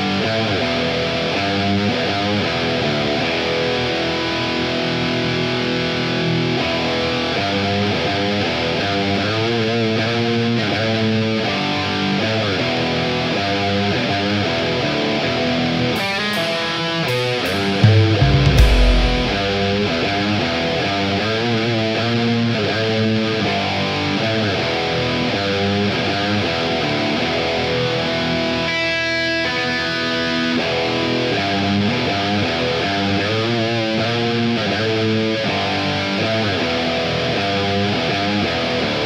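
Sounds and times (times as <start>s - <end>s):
electric guitar riffing: 14.5s - 20.9s
bass guitar: 15.4s - 20.8s.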